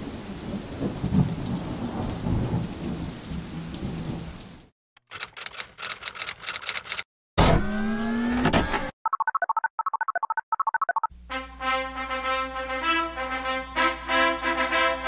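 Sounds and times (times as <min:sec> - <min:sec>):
low rolling thunder: 0:00.0 - 0:04.3
typewriter keys clacking: 0:05.0 - 0:07.1.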